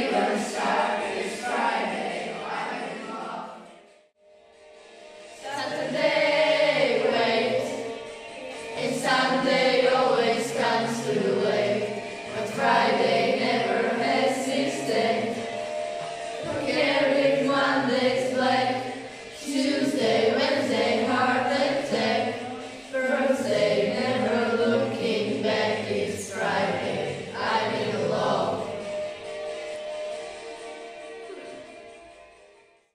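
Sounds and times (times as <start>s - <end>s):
children singing: 0.0s - 3.8s, 5.4s - 29.0s.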